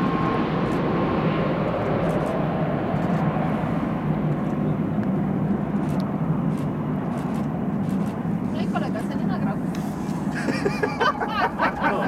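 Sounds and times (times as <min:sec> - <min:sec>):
jet engines at low power: 0:00.0 - 0:12.0.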